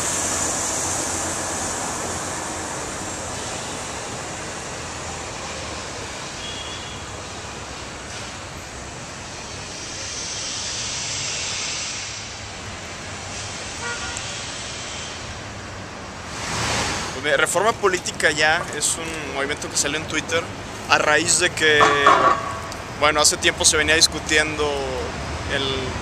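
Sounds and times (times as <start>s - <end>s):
rush of passing vehicles: 0.0s - 26.0s
car horn toot: 6.4s - 7.1s, 13.8s - 14.3s.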